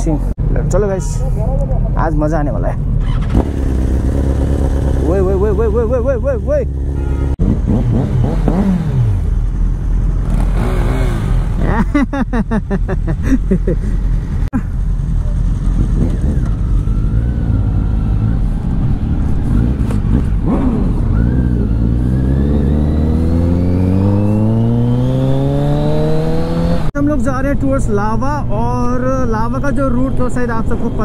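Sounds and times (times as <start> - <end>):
motorcycle engine revving: 2.9 - 11.9, 14.1 - 27.0.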